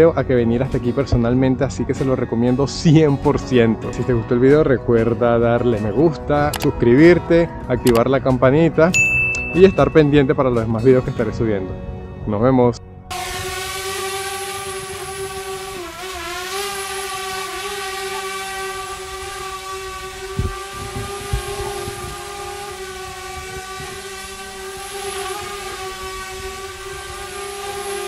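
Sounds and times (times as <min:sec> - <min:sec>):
drone propellers buzzing: 0:13.1 - 0:28.0.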